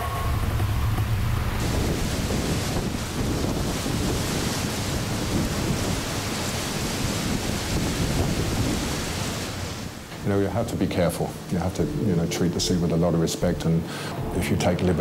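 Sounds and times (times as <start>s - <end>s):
storm wind buffeting microphone: 0.0s - 10.6s
heavy seas breaking: 0.0s - 15.0s.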